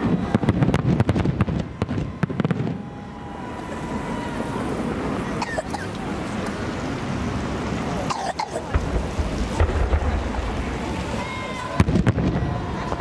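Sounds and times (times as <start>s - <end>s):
fireworks bursting with bangs: 0.0s - 4.2s, 8.6s - 13.0s
steady rushing background noise: 0.0s - 13.0s.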